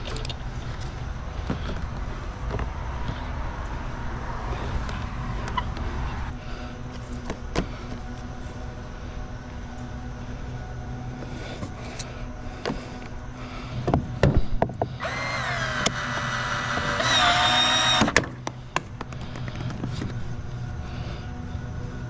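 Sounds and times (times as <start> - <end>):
power tool motor whining: 15.0 - 18.2.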